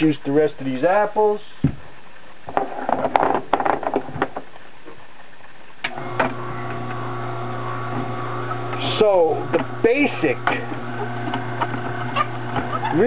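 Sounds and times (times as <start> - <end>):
juicer motor humming: 5.9 - 13.0.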